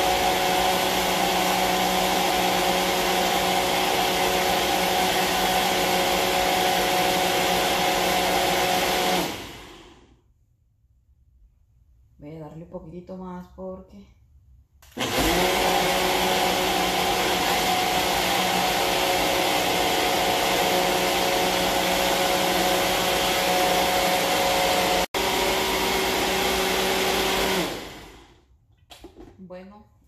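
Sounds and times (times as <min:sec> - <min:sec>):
blender motor whining: 0:00.0 - 0:10.1, 0:14.8 - 0:28.4.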